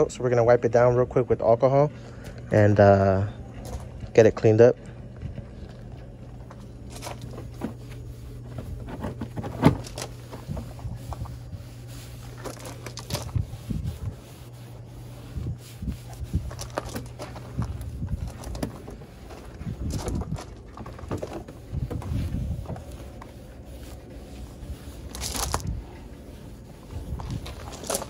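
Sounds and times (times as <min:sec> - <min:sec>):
low hum: 0:00.0 - 0:28.0
towel rubbing plastic: 0:06.8 - 0:28.0.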